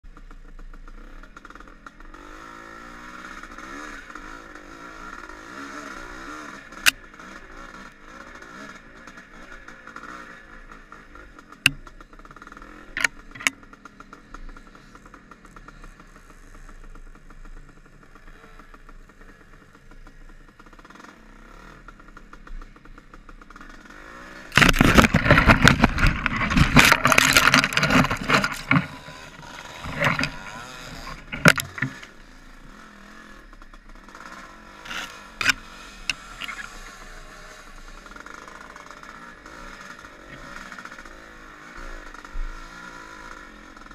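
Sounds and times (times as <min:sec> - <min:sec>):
dirt bike engine: 0:00.0 - 0:43.9
sharp clicks: 0:12.9 - 0:13.6, 0:24.5 - 0:32.1, 0:34.9 - 0:36.8
branches scraping camera: 0:23.9 - 0:32.8, 0:34.2 - 0:38.1.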